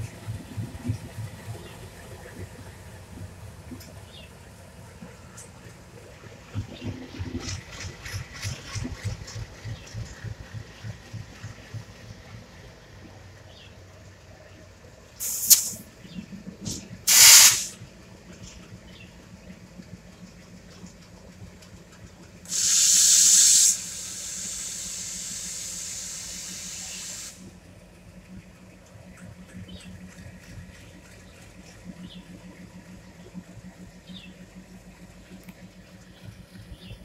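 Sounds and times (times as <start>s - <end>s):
diesel engine idling: 0.0s - 37.0s
compressed air hissing: 15.2s - 15.8s, 17.1s - 17.8s, 22.5s - 27.5s.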